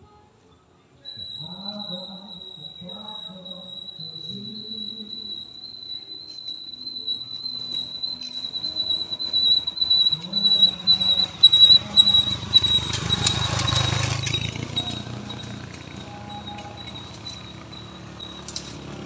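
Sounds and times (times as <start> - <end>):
motorcycle engines climbing uphill: 6.2 - 19.0.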